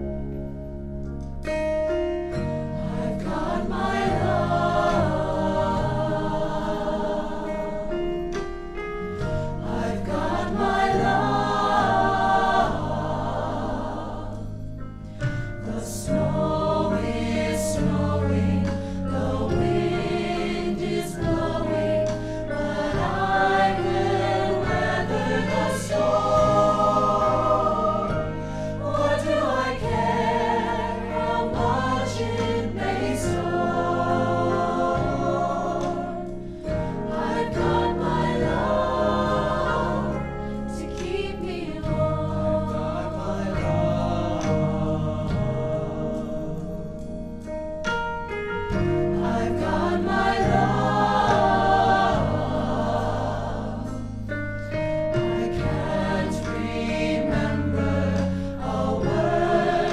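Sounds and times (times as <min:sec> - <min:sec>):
mixed choir singing in harmony: 0:02.3 - 0:47.5, 0:48.5 - 0:59.9.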